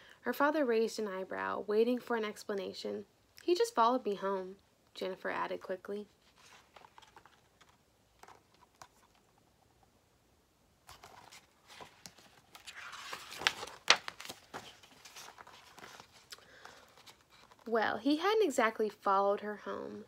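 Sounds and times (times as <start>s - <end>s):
paper page rustling: 6.1s - 9.4s, 10.8s - 17.7s.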